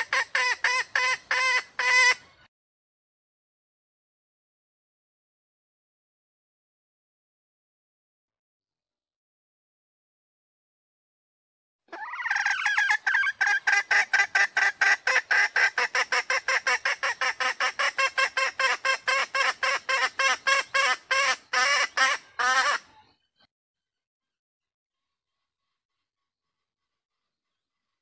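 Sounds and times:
hen clucking: 0.0s - 2.4s, 11.9s - 23.1s.

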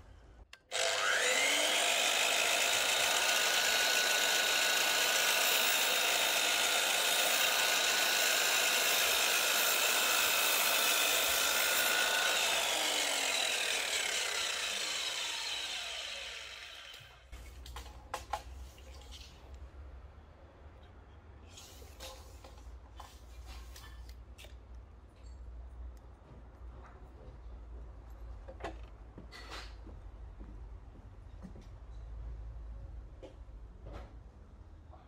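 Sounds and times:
mitre saw cutting timber: 0.6s - 17.3s
saw blade winding down: 0.6s - 17.3s.

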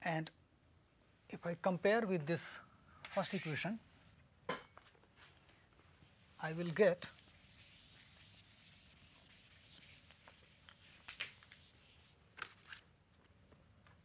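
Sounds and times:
eraser rubbing on chalkboard: 6.1s - 12.2s.

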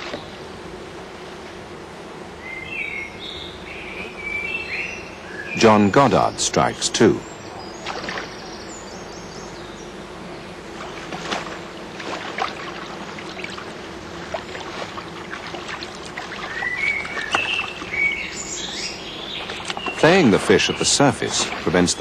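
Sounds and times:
fish splashing in water: 7.8s - 8.3s, 10.8s - 18.0s
bird chirps: 16.4s - 21.0s.

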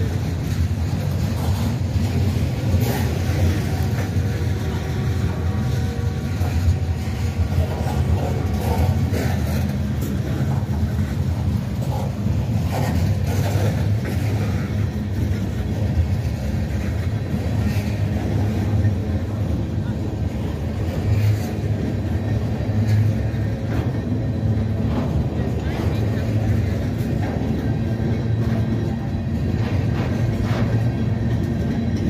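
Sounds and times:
train rumbling past: 0.0s - 32.0s
wheels on rails: 0.0s - 32.0s.

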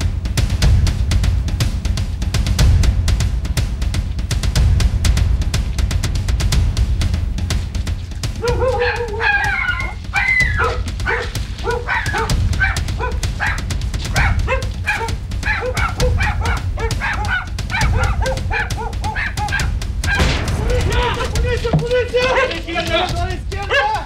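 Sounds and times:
small dogs yapping: 8.2s - 20.3s, 22.1s - 23.1s, 23.7s - 24.0s
low rumble: 17.5s - 22.2s.

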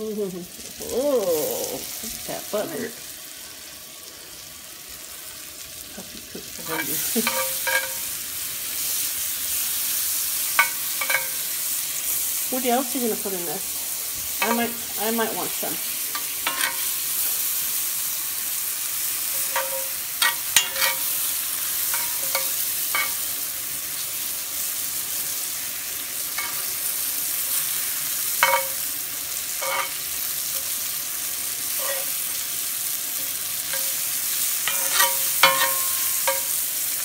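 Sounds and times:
mushrooms sizzling in butter: 0.0s - 37.0s
metal spoon scraping a pan: 6.7s - 8.2s, 10.5s - 11.5s, 16.1s - 17.4s, 19.2s - 23.4s, 26.2s - 30.8s, 31.7s - 32.4s, 33.4s - 36.9s.

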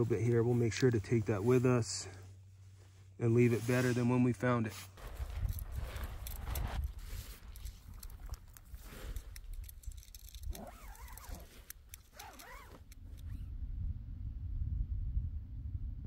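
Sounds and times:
wind rumbling on microphone: 5.0s - 16.0s.

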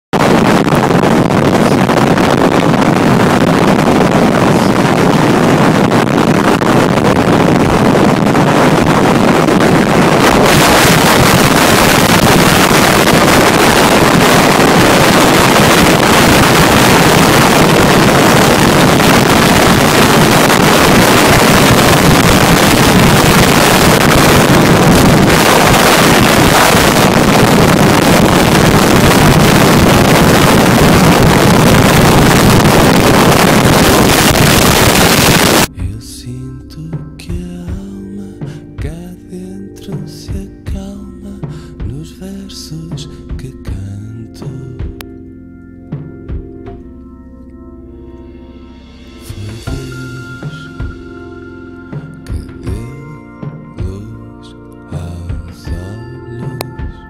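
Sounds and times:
wind rushing over microphone: 0.1s - 35.8s.

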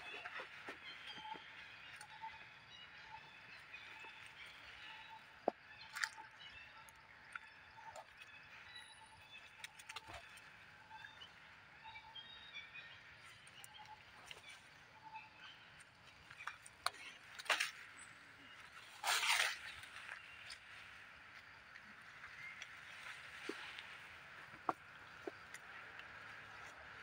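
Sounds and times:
faint bird chirps: 0.0s - 17.3s
rustle: 17.4s - 27.0s.

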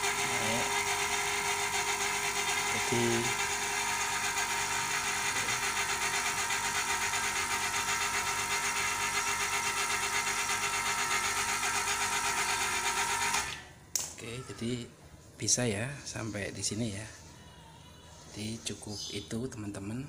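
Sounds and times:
compressor running: 0.0s - 14.1s.

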